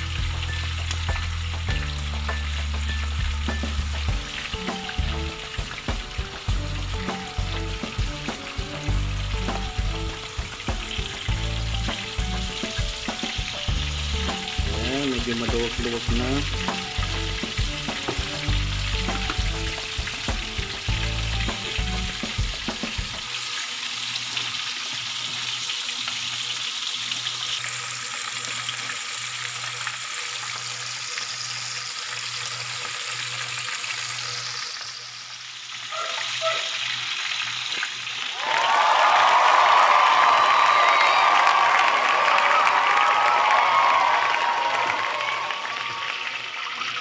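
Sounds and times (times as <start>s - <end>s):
chicken deep-frying in oil: 0.0s - 47.0s.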